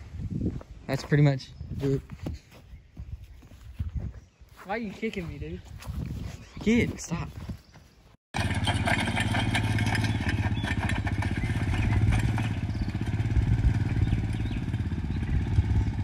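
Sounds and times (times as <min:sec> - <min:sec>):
atv engine at low throttle: 0:08.4 - 0:16.0.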